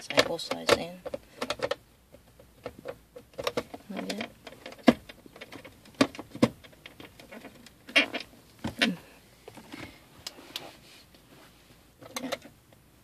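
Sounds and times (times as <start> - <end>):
plastic trim knocking and clicking: 0.1 - 7.0.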